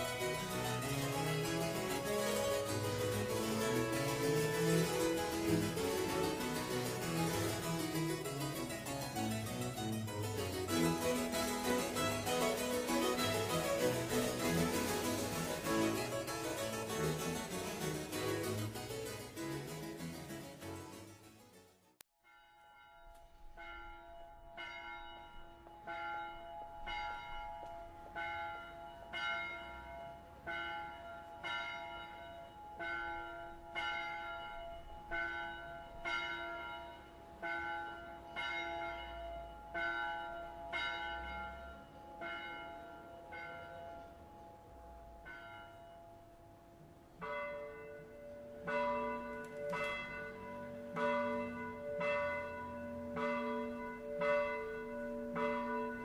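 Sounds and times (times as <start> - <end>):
church bells ringing: 0.0 - 21.2, 22.2 - 56.0
deep bell ringing: 47.2 - 56.0.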